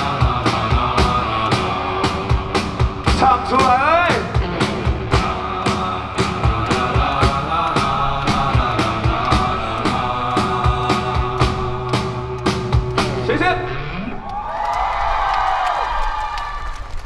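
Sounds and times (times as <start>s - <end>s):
drums keeping a steady beat: 0.0s - 13.6s
sustained guitar chords: 0.0s - 14.3s
bending guitar note: 4.3s - 5.6s, 11.6s - 14.3s.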